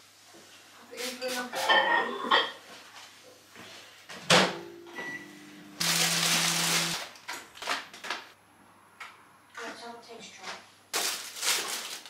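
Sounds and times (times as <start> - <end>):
plastic packaging rustling: 5.8 - 8.4, 10.9 - 12.0.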